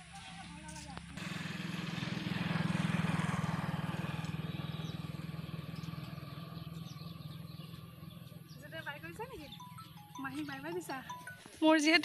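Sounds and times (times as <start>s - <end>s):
vehicle engine pulsing: 1.2s - 10.5s.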